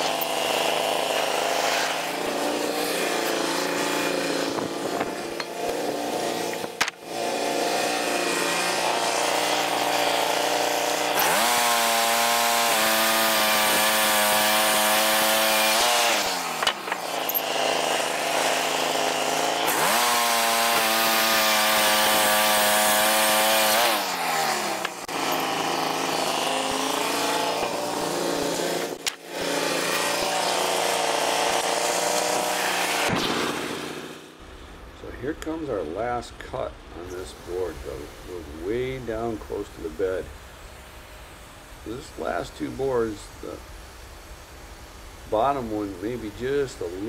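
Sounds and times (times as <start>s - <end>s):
band saw hissing through log: 0.0s - 34.3s, 37.2s - 47.0s
engine idling and revving: 0.0s - 34.4s.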